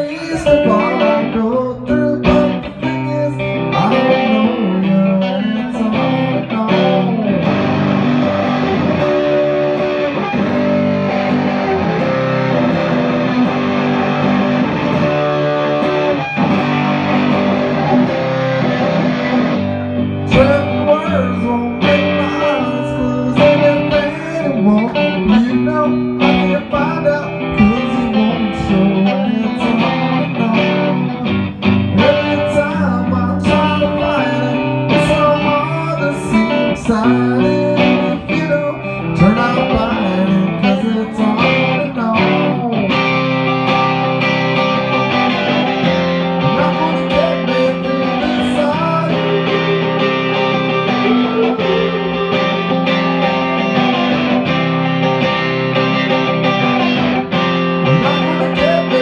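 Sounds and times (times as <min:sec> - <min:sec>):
man singing: 0:00.0 - 0:07.8, 0:20.2 - 0:42.8, 0:46.4 - 0:54.4, 0:57.8 - 0:59.0
distorted electric guitar: 0:00.0 - 0:59.0
strummed guitar chords: 0:00.0 - 0:59.0.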